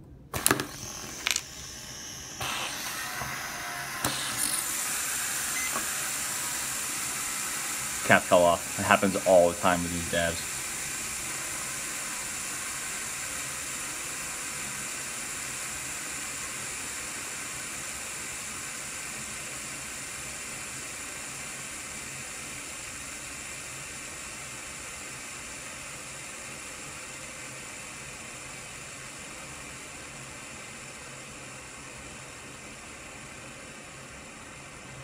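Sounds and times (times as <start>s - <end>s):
fidget spinner bearings whirring: 0.4s - 9.4s.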